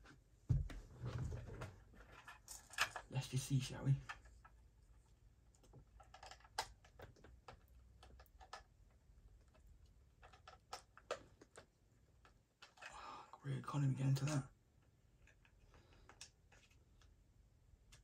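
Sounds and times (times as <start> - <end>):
hands handling plastic toy: 1.6 - 3.1, 4.0 - 13.0, 14.1 - 17.2.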